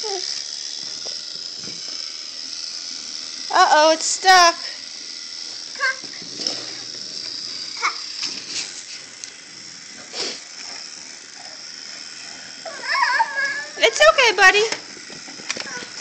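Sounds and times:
toddler's voice: 0.0 - 0.3, 5.8 - 6.2, 7.8 - 8.0, 12.7 - 14.0, 15.6 - 16.0.

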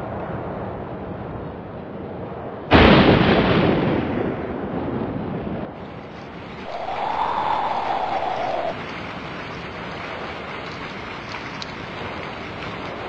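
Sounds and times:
thunderclap rumbling: 2.7 - 9.5
wind-like noise: 5.7 - 9.3
faint rising and falling tone: 6.6 - 8.8.

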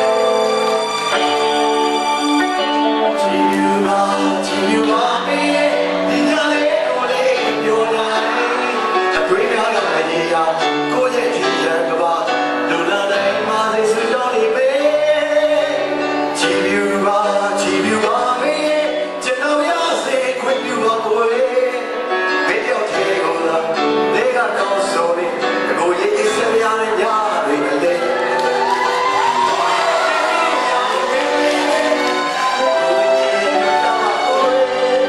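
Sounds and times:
electric guitar: 0.0 - 10.0
keyboards: 0.0 - 35.0
man singing into a microphone: 2.6 - 28.5, 29.4 - 35.0.

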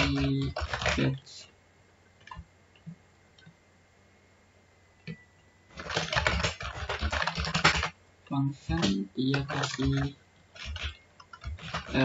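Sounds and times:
keyboard typing: 0.0 - 1.2, 2.2 - 3.5, 5.0 - 8.0, 8.6 - 12.0.

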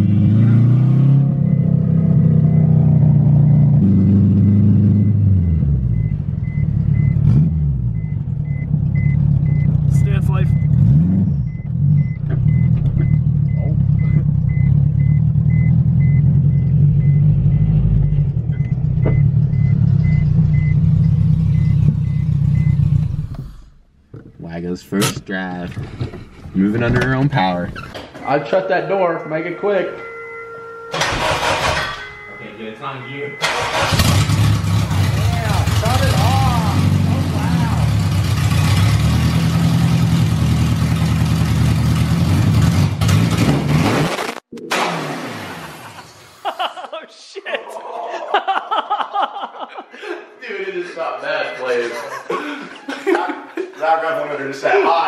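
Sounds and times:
car engine running at low revs: 0.0 - 24.4
rapid warning beep: 3.4 - 7.2, 7.9 - 22.9, 28.4 - 34.0
car engine idling: 7.9 - 24.3, 29.3 - 42.6.

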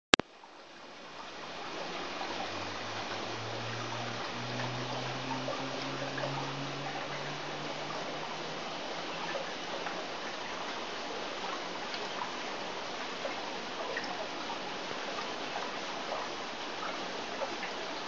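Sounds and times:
low hum: 0.2 - 13.4
water trickling through filter: 0.2 - 18.0.

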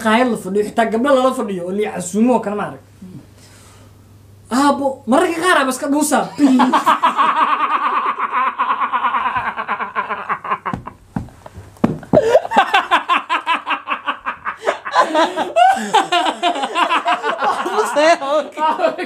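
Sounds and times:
young men laughing: 6.2 - 11.0, 12.0 - 19.0
dull thumps: 9.2 - 9.8, 10.4 - 12.8.

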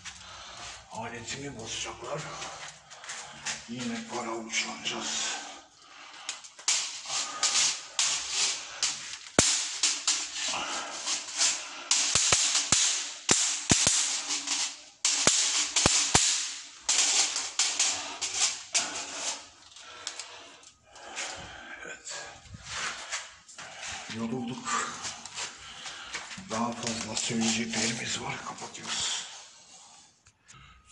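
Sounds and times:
hand tool rustling and scraping: 0.0 - 30.3
sharp cracks: 5.8 - 21.1.

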